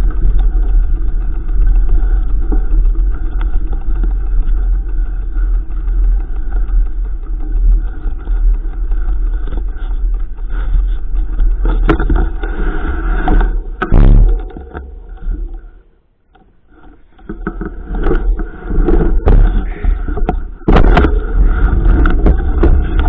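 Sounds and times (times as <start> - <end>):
wind on microphone: 0.0 - 15.8, 17.4 - 23.0
bike rattling over rough ground: 0.0 - 23.0
loud bike jolt: 11.6 - 15.5, 17.7 - 23.0.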